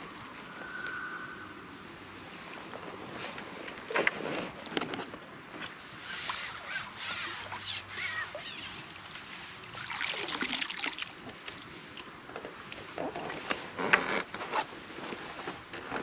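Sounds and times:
rush of water: 0.0s - 15.4s
water splashing and dripping: 6.1s - 13.0s.

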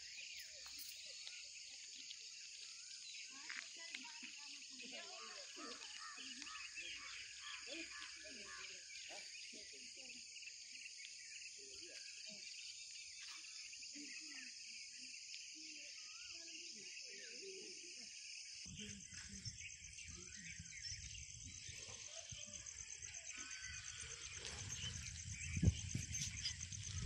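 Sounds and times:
insects chirring: 0.0s - 27.0s
fast pulsing insect trill: 15.5s - 27.0s.

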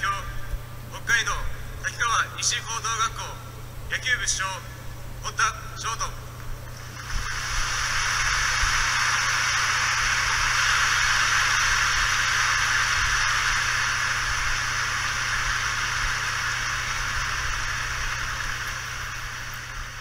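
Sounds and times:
crowd applauding: 6.8s - 20.0s.

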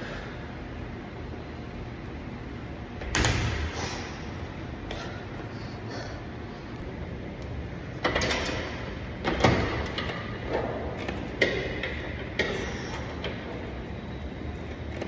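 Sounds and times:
gym machine metal clanks: 8.0s - 13.5s.

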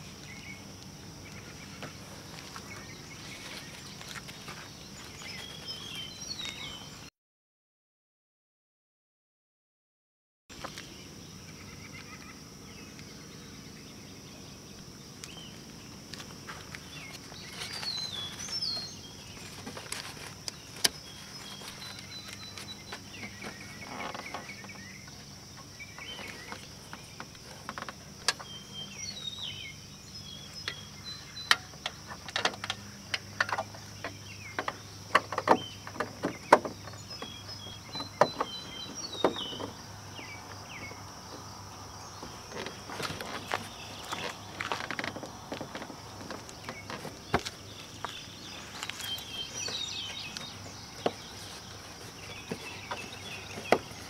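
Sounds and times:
birds chirping: 0.0s - 7.1s, 10.5s - 54.0s
sharp clicks and knocks: 31.4s - 37.3s.

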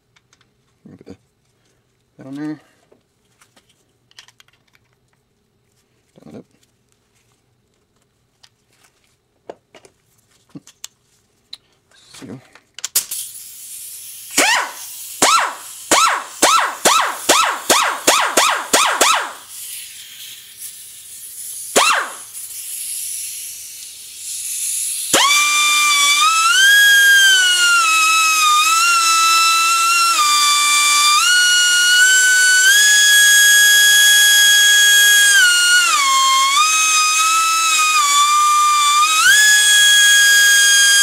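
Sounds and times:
die grinder whining: 25.1s - 41.0s.

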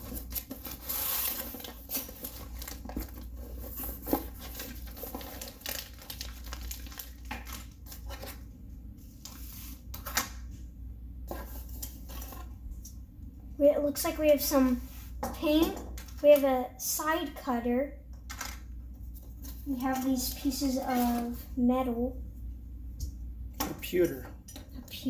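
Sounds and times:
cardboard and paper tearing: 0.0s - 7.1s, 20.4s - 21.4s
plastic bag crinkling: 0.0s - 8.4s.

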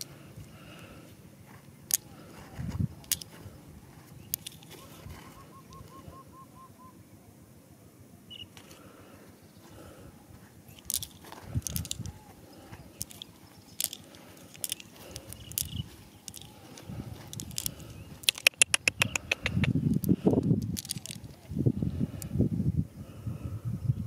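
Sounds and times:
stones and marbles clicking: 0.0s - 0.9s, 1.8s - 5.0s, 10.7s - 21.5s
fingers digging through gravelly soil: 1.5s - 5.9s, 10.7s - 21.5s
bird chirps: 2.8s - 7.2s, 8.2s - 8.6s, 11.8s - 16.9s.

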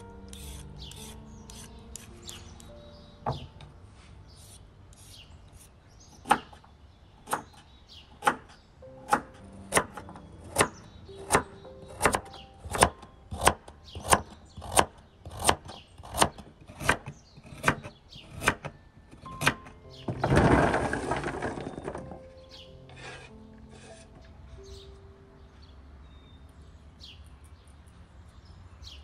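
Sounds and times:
cleaver chopping on wooden board: 6.2s - 6.6s, 7.2s - 7.6s, 9.1s - 18.7s.

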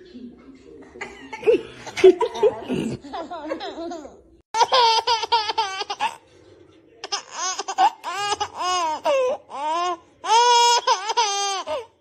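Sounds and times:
baby laughing: 3.2s - 6.2s, 7.0s - 11.9s.

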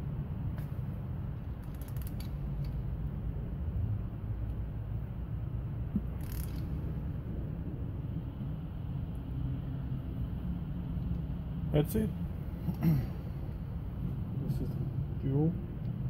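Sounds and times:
low rumble: 0.0s - 16.0s
ratchet clicks: 1.6s - 2.8s, 6.2s - 6.8s.

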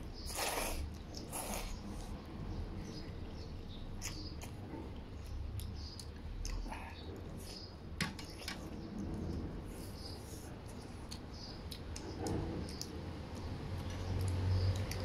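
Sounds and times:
noodles being slurped: 0.2s - 2.2s
chewing: 3.9s - 7.7s, 8.3s - 15.0s.

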